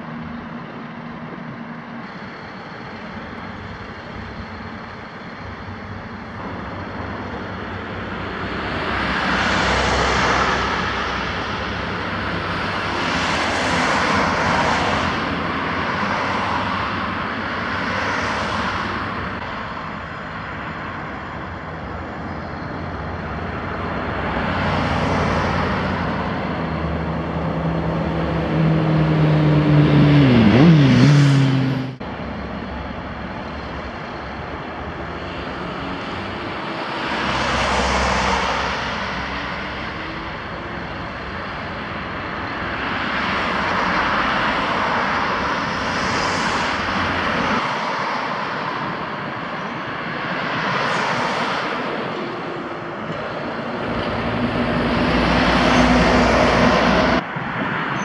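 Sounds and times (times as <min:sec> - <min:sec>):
outdoor mechanical noise: 0:00.0 - 0:58.0
engine running: 0:25.6 - 0:43.3.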